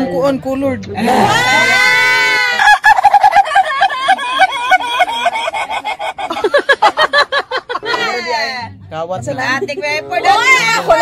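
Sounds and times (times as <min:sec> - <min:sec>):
rapid high-pitched cackling laughter: 0:01.3 - 0:08.2
lower laugh: 0:02.4 - 0:08.2.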